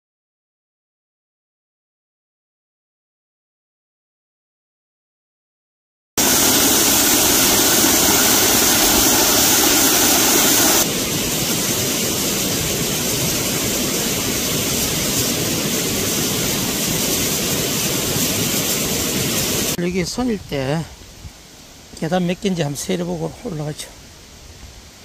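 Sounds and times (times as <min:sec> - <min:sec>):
waterfall rushing: 0:06.2 - 0:19.8.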